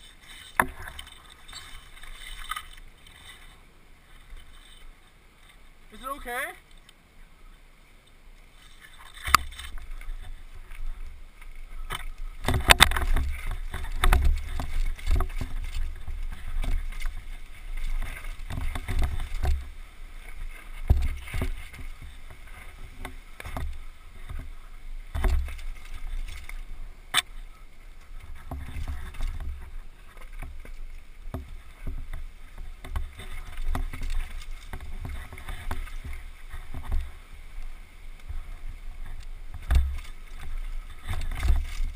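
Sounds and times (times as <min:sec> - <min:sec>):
mountain bike rattling over rocks: 0:11.8 - 0:19.8.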